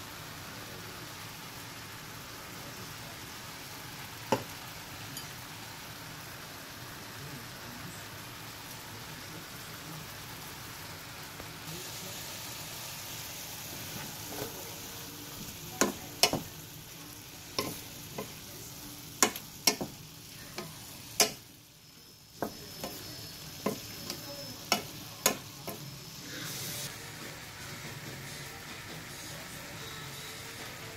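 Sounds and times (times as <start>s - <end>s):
vegetables sizzling in a skillet: 0.0s - 30.9s
spoon knocking against pan: 15.8s - 16.5s, 17.6s - 18.4s, 19.2s - 20.0s, 20.6s - 21.4s, 22.4s - 23.0s, 23.6s - 25.8s.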